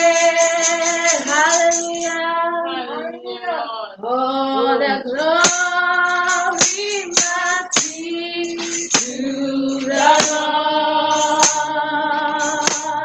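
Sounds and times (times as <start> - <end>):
sharp percussion strikes: 0.0 - 2.2, 5.3 - 10.5, 11.1 - 11.7, 12.3 - 13.0
woman singing gospel: 0.0 - 13.0.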